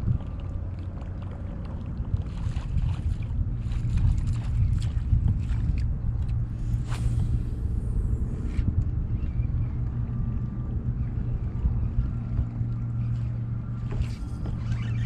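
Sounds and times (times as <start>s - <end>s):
hull slapping on waves: 0.0s - 8.3s
outboard motor running: 0.0s - 15.0s
wind: 0.0s - 15.0s.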